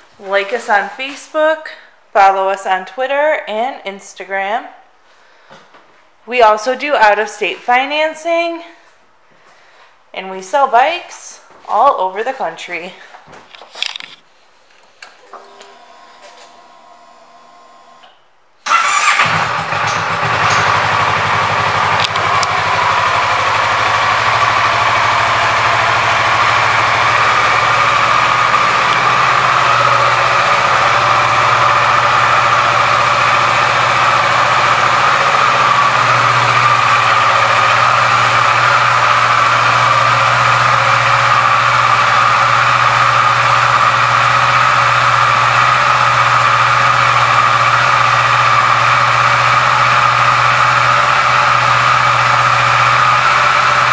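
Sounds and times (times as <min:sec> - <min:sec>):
motorcycle engine starting and idling: 0:15.2 - 0:53.9.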